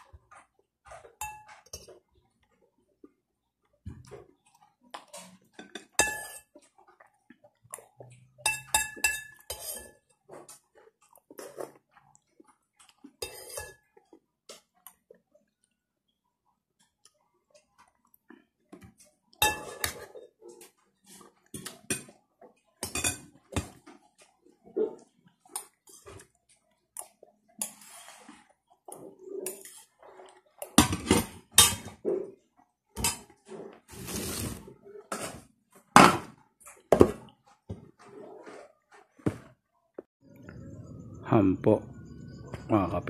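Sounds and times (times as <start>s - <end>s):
spoon clinking on plates: 1.2s - 2.0s, 5.6s - 6.6s, 8.3s - 10.1s, 19.4s - 20.0s.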